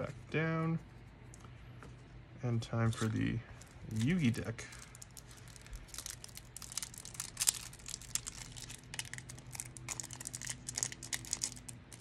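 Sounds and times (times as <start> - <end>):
plastic shrink-wrap crinkling: 3.6 - 12.0.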